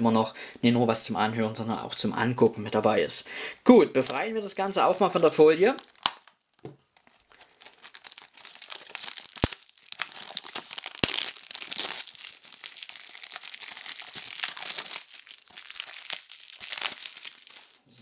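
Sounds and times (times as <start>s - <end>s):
plastic film crinkling: 3.7s - 17.8s.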